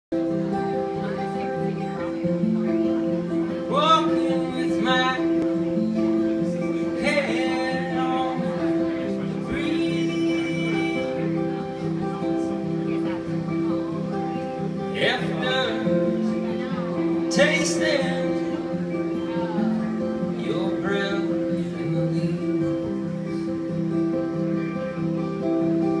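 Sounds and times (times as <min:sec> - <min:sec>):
acoustic guitars strumming: 0:00.1 - 0:26.0.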